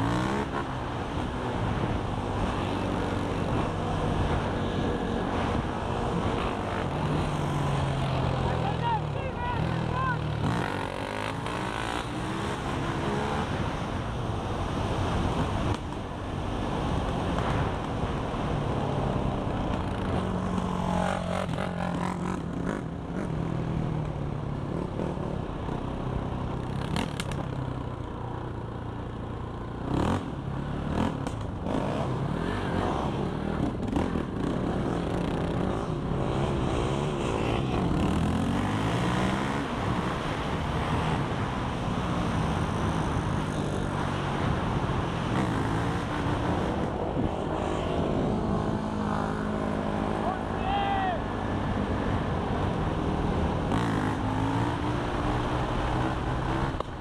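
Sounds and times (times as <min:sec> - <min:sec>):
quad bike engine revving: 0:00.0 - 0:14.0, 0:18.7 - 0:23.7, 0:26.6 - 0:27.6, 0:29.8 - 0:50.6, 0:51.2 - 0:56.9
wind rushing over microphone: 0:00.0 - 0:23.8, 0:31.0 - 0:50.2.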